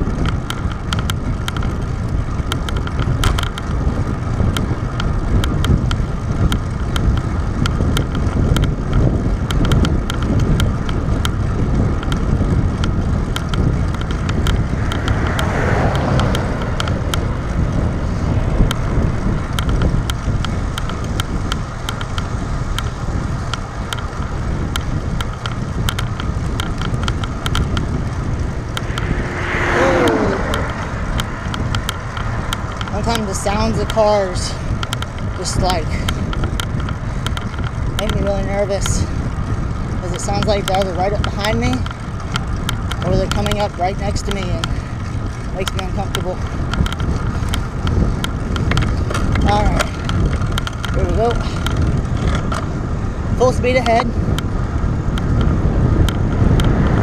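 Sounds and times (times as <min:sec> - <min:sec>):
bicycle tyre rumble: 0:00.0 - 0:57.0
rapid light ticks: 0:00.0 - 0:57.0
wind rush on microphone: 0:00.0 - 0:57.0
car passing: 0:13.8 - 0:20.0, 0:26.3 - 0:36.1, 0:56.2 - 0:57.0.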